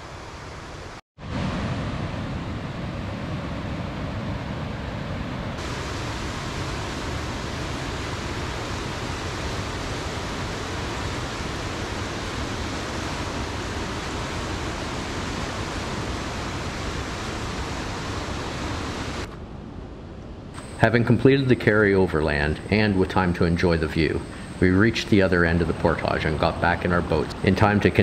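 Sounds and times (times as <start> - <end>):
river rapids and waterfall rushing: 5.6 - 19.3.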